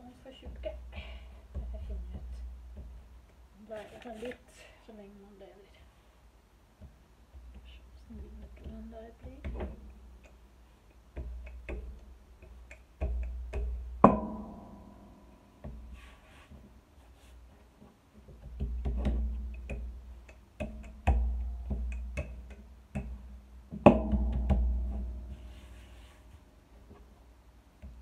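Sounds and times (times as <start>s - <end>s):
rolling pin knocking on board: 20.6s - 25.1s.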